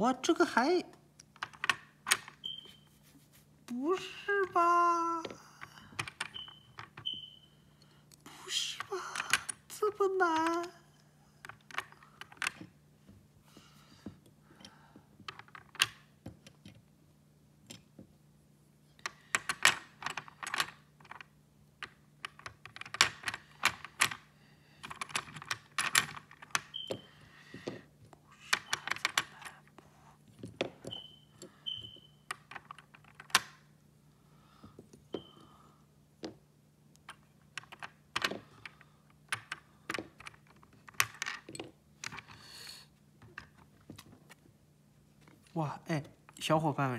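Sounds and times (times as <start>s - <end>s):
low steady hum: 0.0s - 46.9s
plastic puzzle pieces clicking: 1.2s - 2.6s, 4.4s - 7.3s, 11.4s - 12.7s, 19.0s - 27.8s, 28.4s - 33.6s, 37.0s - 42.4s.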